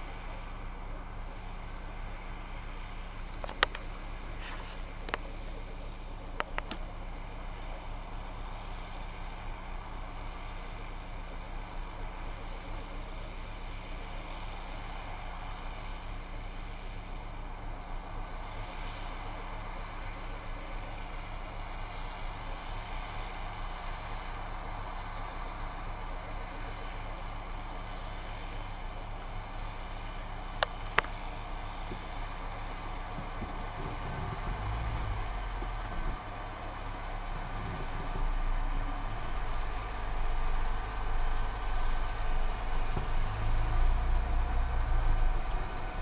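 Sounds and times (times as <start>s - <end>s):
engine running steadily: 0.0s - 46.0s
sharp clicks: 6.4s - 6.8s
uneven low rumble: 30.0s - 46.0s.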